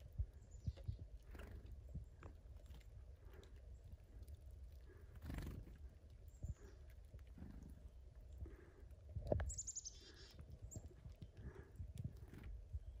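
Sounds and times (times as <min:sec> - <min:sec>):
steady low rumble: 0:00.0 - 0:13.0
chickadees calling: 0:09.5 - 0:10.9.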